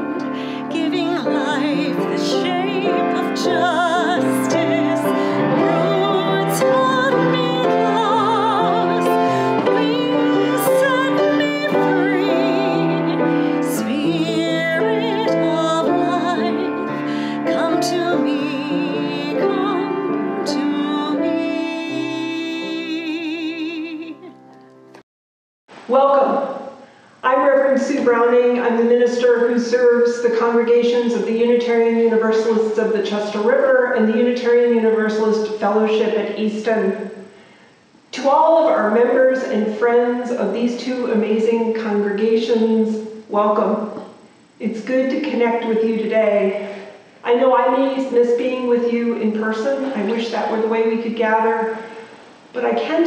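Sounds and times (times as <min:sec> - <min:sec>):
classical singing with vibrato: 0:00.0 - 0:24.4
piano accompaniment: 0:00.0 - 0:25.0.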